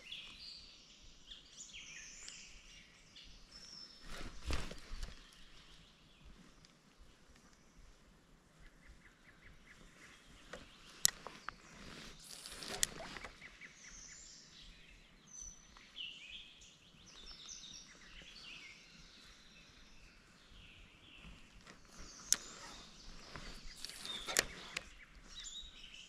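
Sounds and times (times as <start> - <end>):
songbirds chirping: 0.0 - 26.0
sharp clicks: 23.4 - 25.0.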